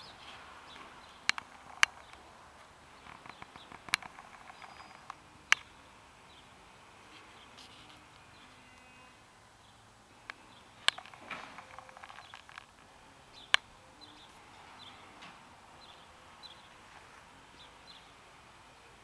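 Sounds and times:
sharp clicks: 1.2 - 2.2, 3.0 - 5.7, 10.2 - 12.8
faint hiss: 2.1 - 11.9.

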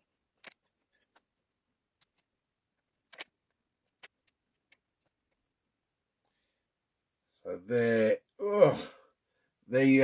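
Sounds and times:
small plastic clicks: 0.4 - 1.2, 2.0 - 5.6.

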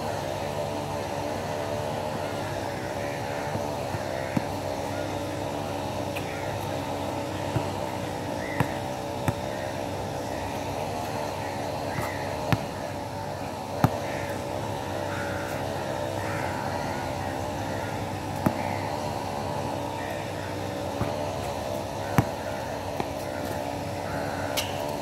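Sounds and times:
droning hum: 0.0 - 25.0
basketball bouncing on hard court: 3.4 - 4.6, 7.3 - 8.0, 8.6 - 9.6, 12.0 - 12.8, 13.7 - 14.0, 18.4 - 19.2, 20.9 - 21.4, 22.1 - 23.1.

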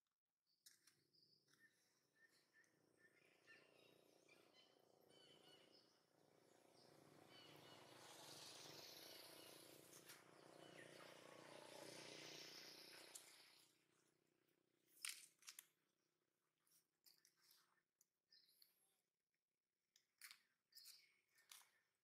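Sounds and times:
faint bird chirps: 0.7 - 6.1.

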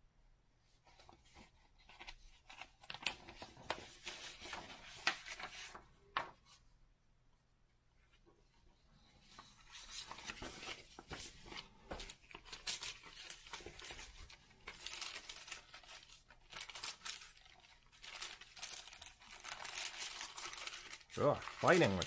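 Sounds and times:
paper rustling and crinkling: 0.8 - 6.6, 9.2 - 22.0
sharp paper crackles: 1.9 - 6.3, 9.4 - 22.0.

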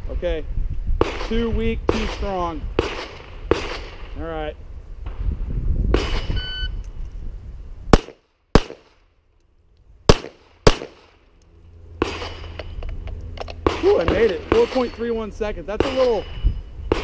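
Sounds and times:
pistol shots: 2.8 - 4.1, 7.9 - 9.0, 10.1 - 11.2, 12.0 - 12.6, 13.6 - 17.0
timer beep: 6.3 - 6.8.

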